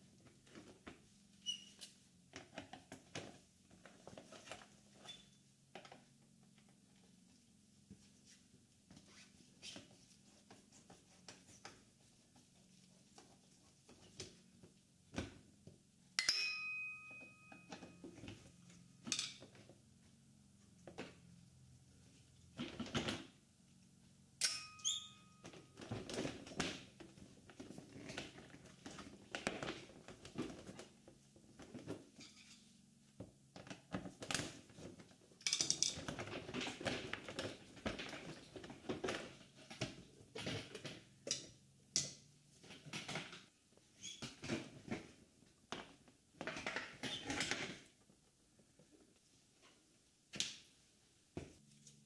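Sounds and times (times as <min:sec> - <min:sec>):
short squeak: 0:24.8 - 0:25.4.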